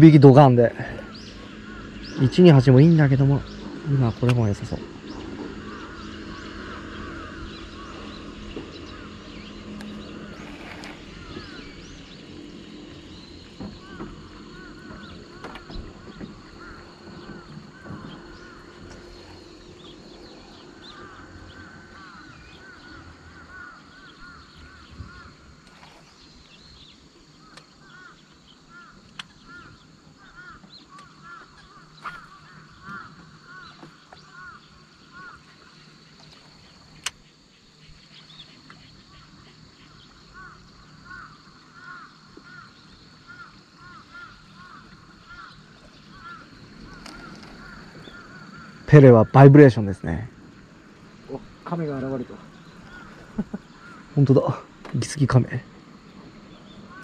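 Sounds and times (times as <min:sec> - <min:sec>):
faint bird calls: 0:00.0 - 0:57.0.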